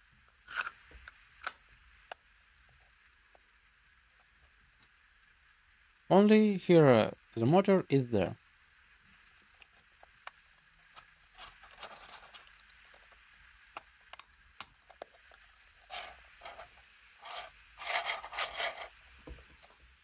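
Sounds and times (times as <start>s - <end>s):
plastic scraping on plastic: 9.6s - 13.2s, 14.8s - 19.8s.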